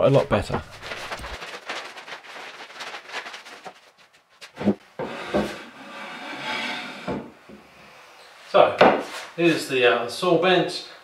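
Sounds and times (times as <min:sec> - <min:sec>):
wood rubbing noise: 0:04.5 - 0:07.3.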